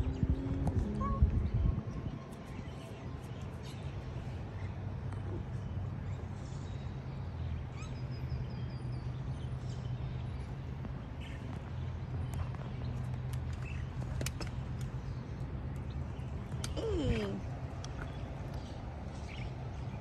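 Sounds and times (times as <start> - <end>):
small birds chirping: 0.1 - 20.0.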